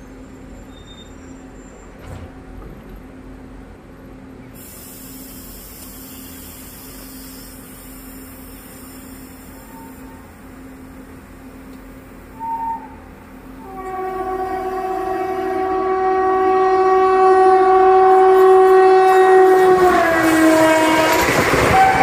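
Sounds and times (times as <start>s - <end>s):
passing train rumble: 0.0s - 22.0s
locomotive horn blast: 12.3s - 22.0s.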